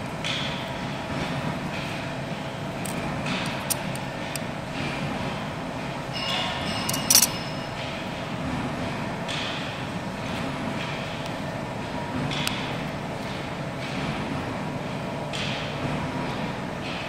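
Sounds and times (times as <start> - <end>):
mechanical hum and rumble: 0.0 - 17.0
metallic ringing and clink: 6.1 - 7.8.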